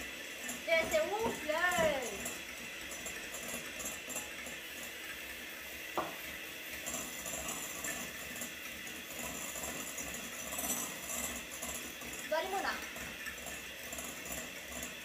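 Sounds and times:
whisking in a bowl: 0.0s - 15.0s.

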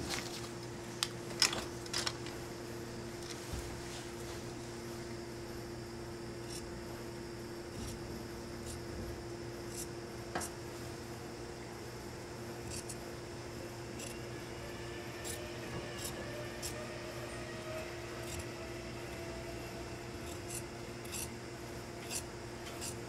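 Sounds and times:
shears snipping fabric: 12.6s - 13.0s, 22.0s - 23.0s.

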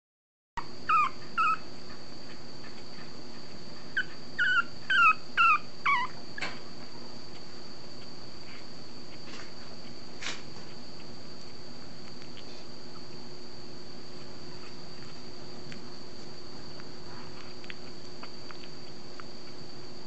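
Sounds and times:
puppy whimpering: 0.6s - 2.0s, 3.8s - 6.6s.

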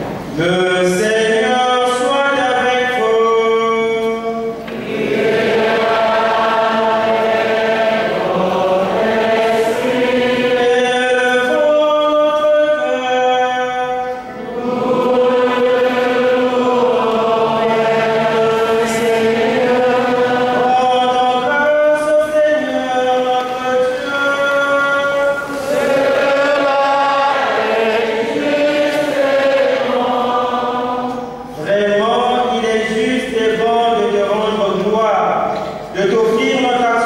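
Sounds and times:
choir singing a slow hymn: 4.6s - 32.4s.

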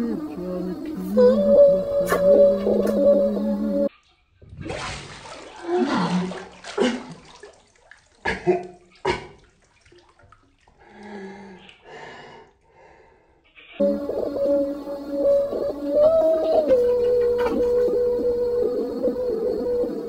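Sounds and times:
water sloshing in bathtub: 4.4s - 11.9s.

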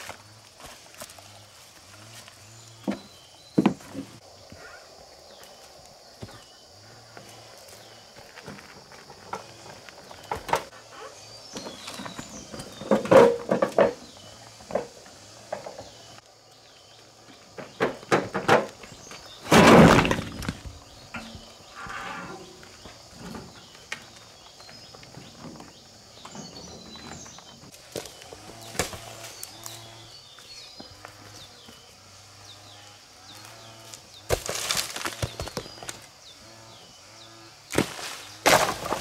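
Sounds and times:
stones crashing: 17.6s - 21.5s, 34.3s - 36.0s, 37.7s - 39.0s.

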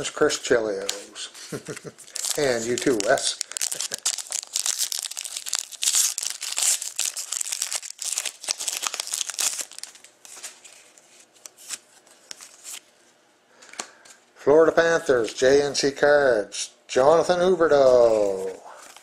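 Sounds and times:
foil wrapper tearing and crinkling: 2.0s - 10.8s.

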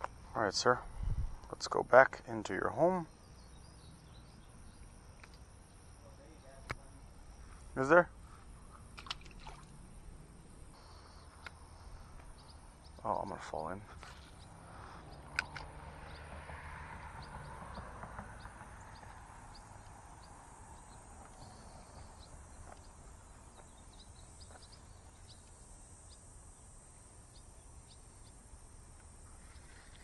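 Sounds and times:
fishing line hiss: 24.9s - 30.0s.

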